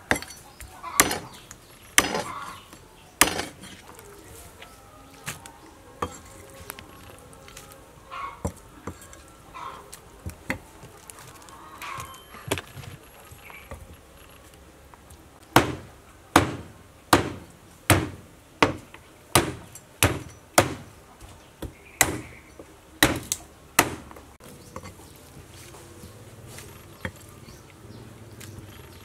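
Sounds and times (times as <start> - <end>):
cleaver chopping chicken: 15.6 - 20.9, 21.6 - 22.4, 23.0 - 24.2.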